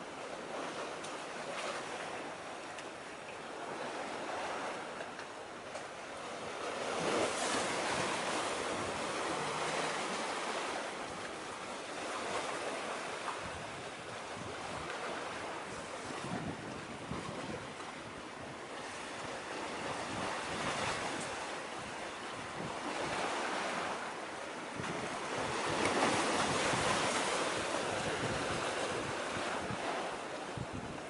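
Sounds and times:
sea waves washing: 0.0s - 31.0s
wind buffeting microphone: 12.6s - 23.9s, 24.7s - 31.0s.

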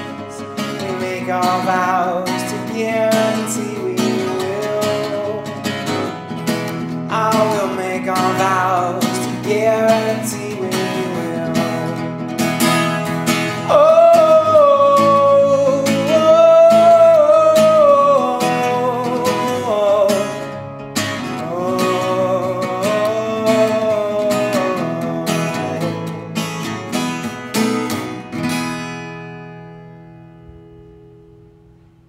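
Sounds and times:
man singing long notes: 0.0s - 6.1s, 7.0s - 12.2s, 13.4s - 20.6s, 21.2s - 26.4s
strummed acoustic guitar: 0.0s - 32.0s.

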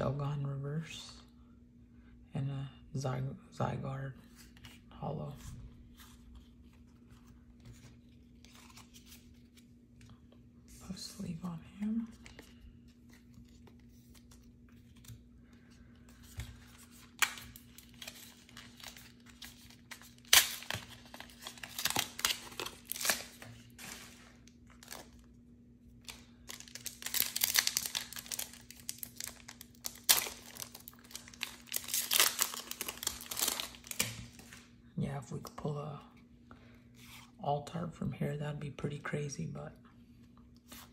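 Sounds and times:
blister pack tearing and crinkling: 16.9s - 25.3s, 26.0s - 34.6s.

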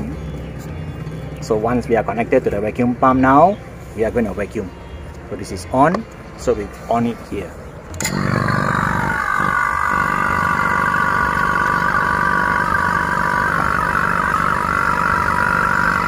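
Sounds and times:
electric vacuum pump running: 8.0s - 16.0s.

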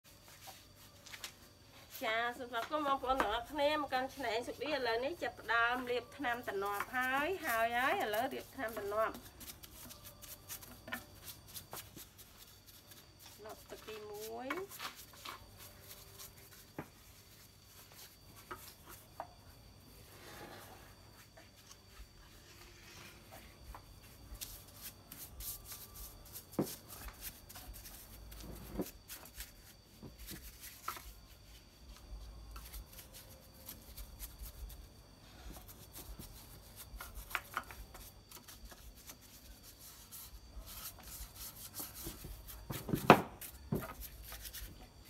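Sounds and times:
scratchy paintbrush strokes: 4.0s - 42.8s, 43.4s - 45.0s.

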